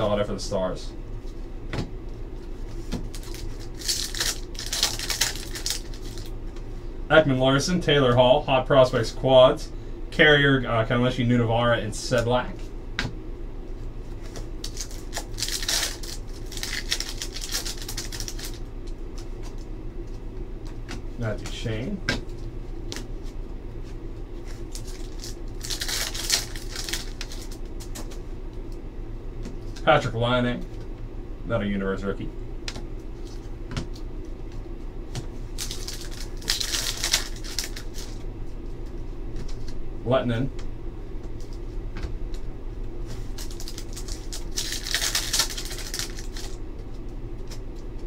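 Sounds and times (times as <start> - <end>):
cards rustling and clicking: 2.4 - 6.3, 14.1 - 21.0, 24.4 - 28.2, 32.7 - 38.2, 43.0 - 48.0
foil wrapper crinkling and tearing: 3.1 - 6.4, 14.6 - 18.7, 24.6 - 28.0, 35.6 - 38.2, 43.1 - 46.6.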